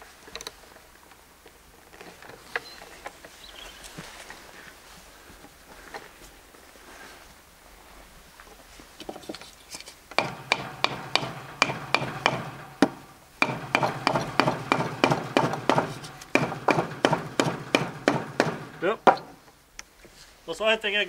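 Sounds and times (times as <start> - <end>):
wooden block knocking on rod: 10.2 - 19.4.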